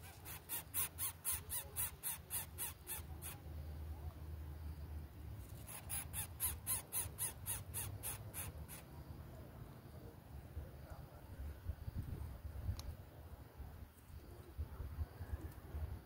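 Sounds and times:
nestling begging calls: 0.0s - 3.4s, 5.5s - 8.9s.

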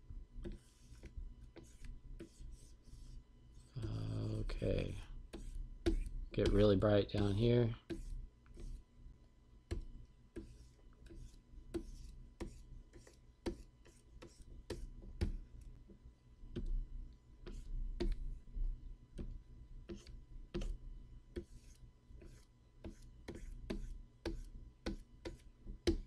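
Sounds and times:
stylus scratchy strokes: 0.5s - 3.8s.

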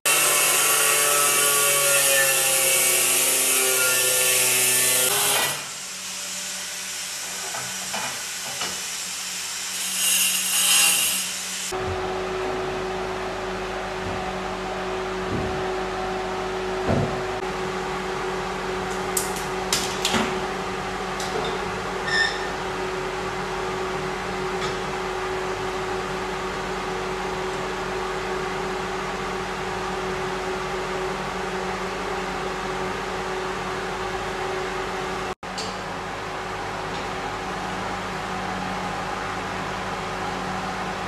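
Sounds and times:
electric fan humming: 11.2s - 41.0s
brief squeak: 22.0s - 22.5s.

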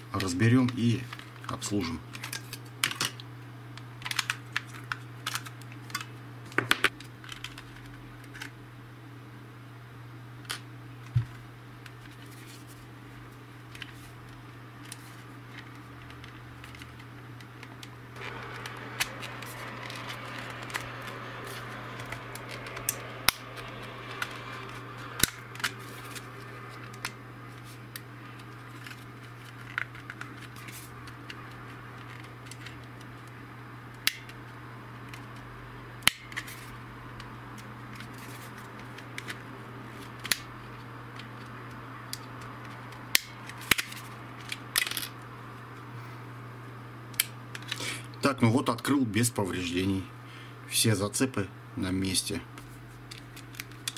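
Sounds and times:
plastic card scraping along seam: 18.2s - 30.9s.

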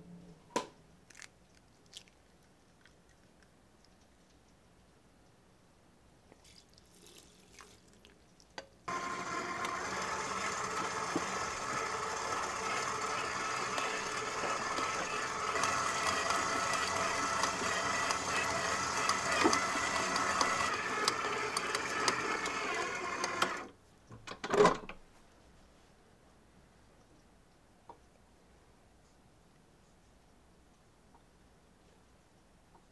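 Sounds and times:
liquid pouring: 6.4s - 8.3s
stand mixer motor whine: 8.9s - 23.7s.

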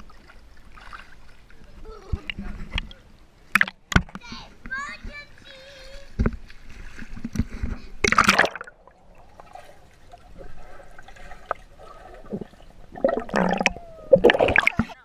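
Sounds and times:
pool water splashing: 0.0s - 15.0s
muffled underwater gurgling: 11.8s - 15.0s.

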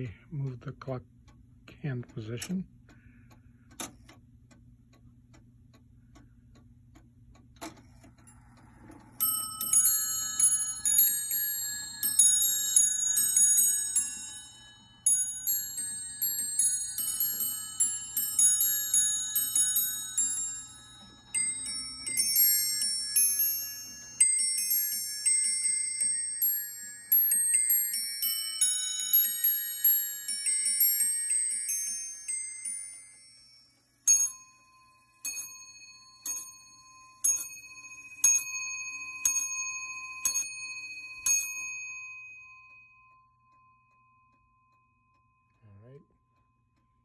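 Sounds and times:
clock ticking: 0.0s - 32.9s
clock click: 0.5s - 9.2s
clock chime tune: 8.3s - 47.0s.

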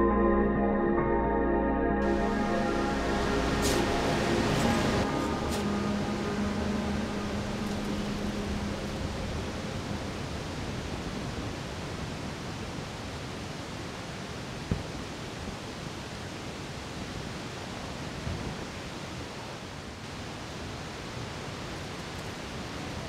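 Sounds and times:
steady hiss: 2.0s - 12.9s.

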